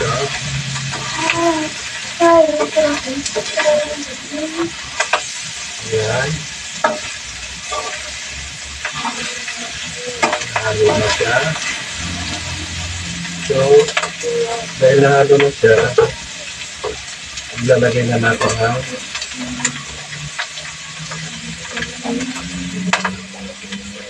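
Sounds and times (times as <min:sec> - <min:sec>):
fish sizzling in oil: 0:00.0 - 0:24.0
spatula scraping a pan: 0:06.6 - 0:13.0.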